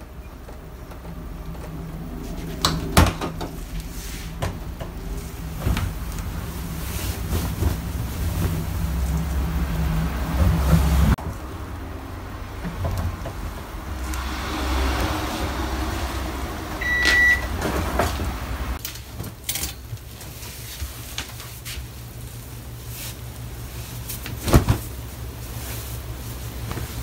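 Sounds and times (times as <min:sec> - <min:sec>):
low steady hum: 0:00.0 - 0:27.0
cloth rustling: 0:05.0 - 0:09.4
short electronic beep: 0:16.8 - 0:17.5.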